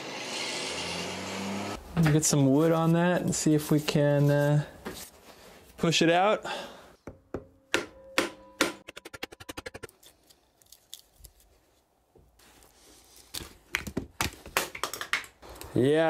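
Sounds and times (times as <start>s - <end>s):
metallic ring: 7.9s - 8.9s.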